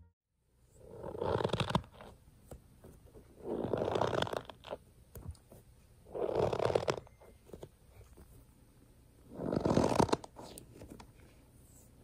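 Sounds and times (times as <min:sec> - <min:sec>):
stress ball squishing: 0:00.8 - 0:07.8.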